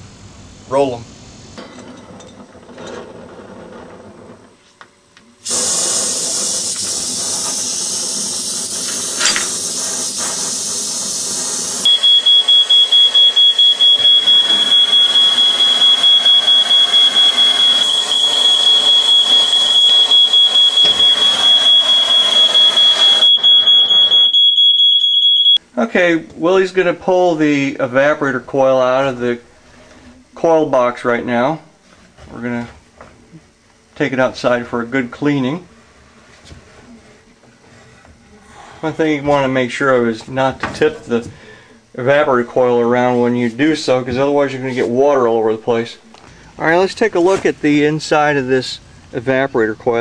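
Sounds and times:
loud steady hiss: 5.4 - 15.5
electronic alarm beeping rapidly: 11.8 - 25.6.

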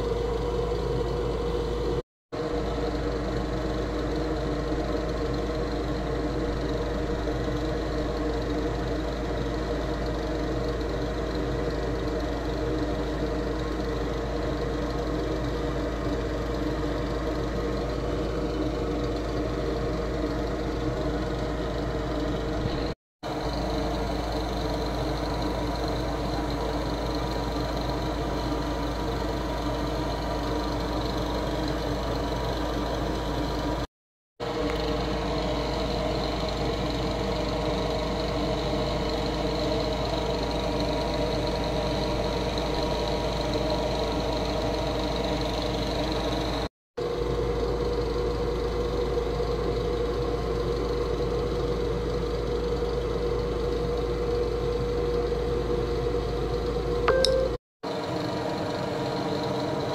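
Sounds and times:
constant rumble: 0.0 - 33.8
mechanical hum with low tones: 0.0 - 59.9.

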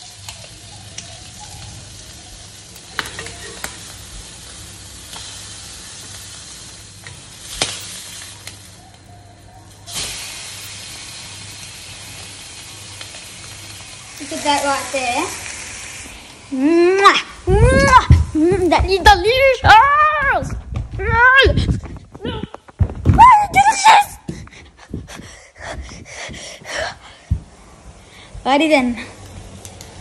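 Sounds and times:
fish frying in oil: 0.0 - 16.6.

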